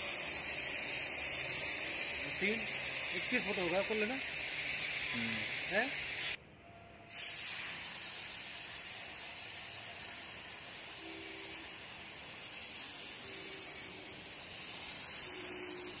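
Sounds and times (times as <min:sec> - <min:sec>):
rushing air hiss: 0:00.0 - 0:06.4.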